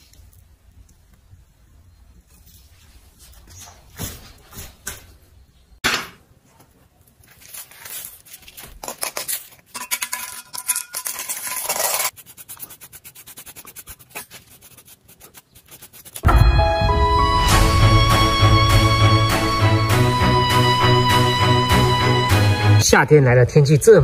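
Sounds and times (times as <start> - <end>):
metal scraping against sand: 9.8 - 12.2
stiff brush scrubbing: 11.2 - 16.3.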